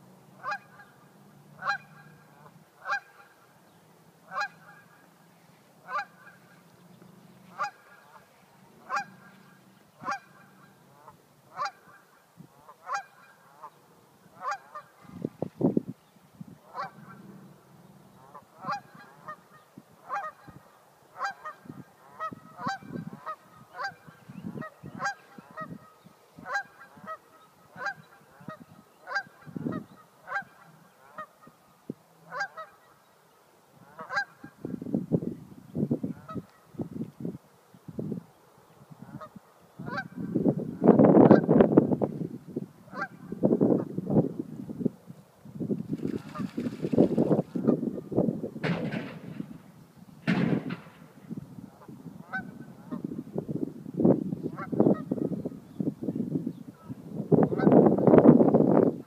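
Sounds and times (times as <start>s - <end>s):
geese honking: 0.4s - 3.5s, 4.2s - 5.1s, 5.8s - 6.7s, 7.4s - 13.8s, 14.4s - 15.1s, 16.7s - 17.3s, 18.2s - 20.6s, 21.2s - 31.6s, 32.3s - 33.0s, 33.8s - 34.6s, 39.0s - 40.2s, 42.9s - 43.4s, 51.7s - 53.1s.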